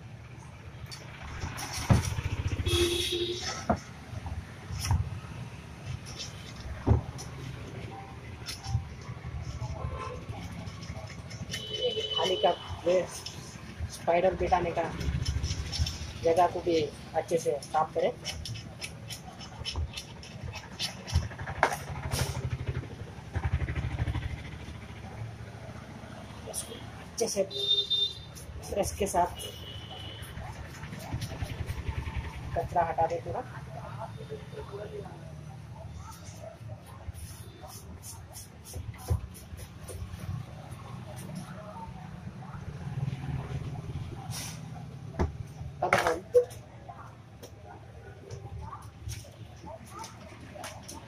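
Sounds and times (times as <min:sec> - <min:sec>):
passing vehicle engine: 0:00.0 - 0:17.2, 0:20.9 - 0:27.2, 0:29.3 - 0:37.6, 0:39.5 - 0:45.8
small engine idling: 0:20.2 - 0:26.7.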